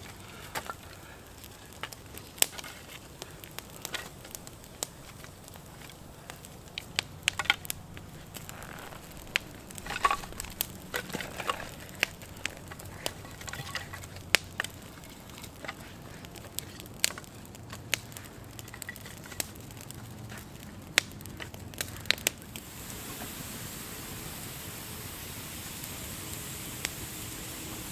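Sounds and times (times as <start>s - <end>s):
campfire crackling and popping: 0.0s - 27.9s
sticks being shifted: 6.8s - 19.5s.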